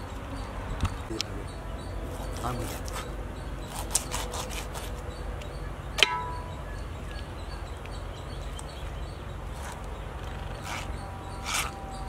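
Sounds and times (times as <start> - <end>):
knife striking wooden block: 6.0 - 6.5.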